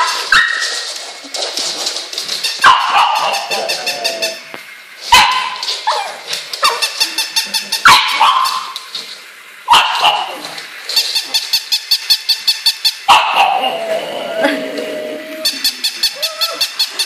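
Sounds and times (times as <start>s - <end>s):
high-pitched dog barks and yips: 2.6s - 3.6s, 5.1s - 6.9s, 7.8s - 8.8s, 9.7s - 10.4s, 13.1s - 13.7s.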